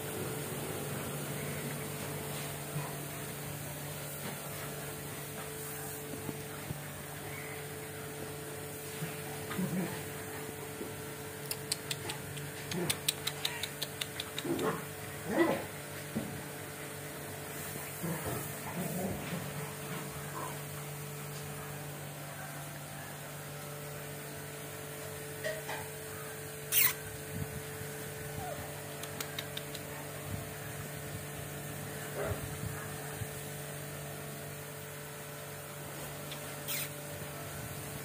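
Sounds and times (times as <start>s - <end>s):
steady electrical hum: 0.0s - 38.0s
puppies making brief sounds: 11.5s - 15.6s, 26.4s - 27.2s, 36.2s - 37.3s.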